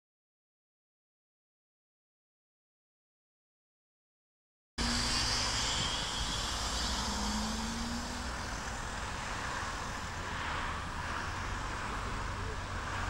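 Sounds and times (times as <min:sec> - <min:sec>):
passing vehicles rushing: 0:04.8 - 0:13.0.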